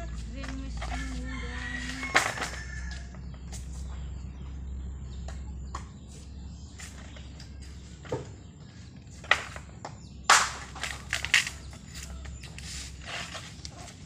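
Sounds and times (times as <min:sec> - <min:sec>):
low steady hum: 0:00.0 - 0:14.0
bamboo poles knocking together: 0:00.1 - 0:03.7, 0:09.1 - 0:14.0.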